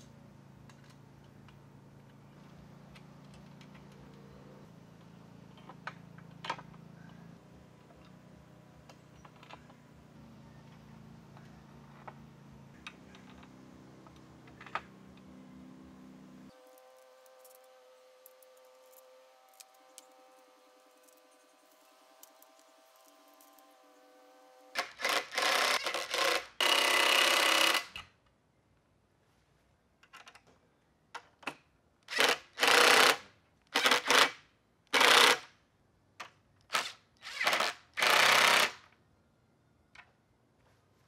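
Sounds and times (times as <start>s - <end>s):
impact driver bursts: 24.7s - 28.1s, 32.1s - 35.5s, 36.7s - 38.9s.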